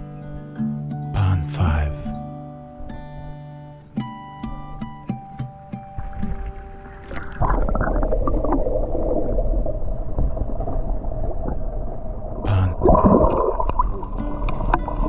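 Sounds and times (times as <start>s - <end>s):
water splash: 5.9s - 15.0s
muffled underwater gurgling: 6.0s - 15.0s
surge of bubbling: 6.0s - 15.0s.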